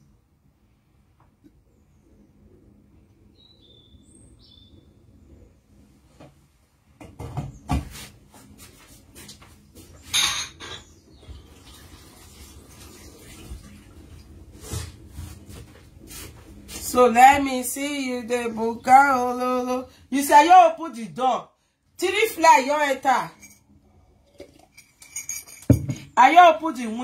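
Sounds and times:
pots and utensils clattering: 10.1s - 11.0s, 24.3s - 26.2s.

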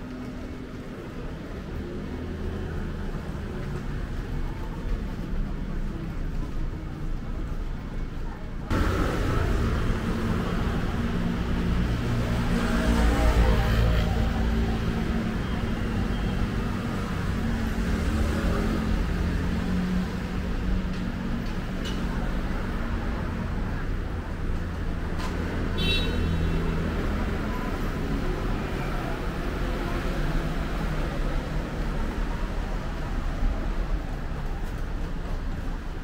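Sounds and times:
road traffic passing: 0.0s - 36.0s.

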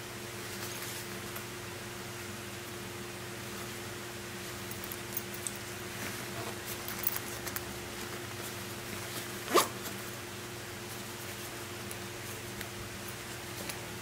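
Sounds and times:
handling clicks and rustles: 4.5s - 10.2s
backpack zipper pulled: 9.4s - 10.0s.

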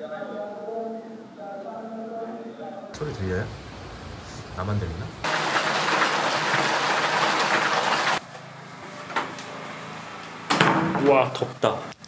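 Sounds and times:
heavy rain: 3.0s - 8.2s.

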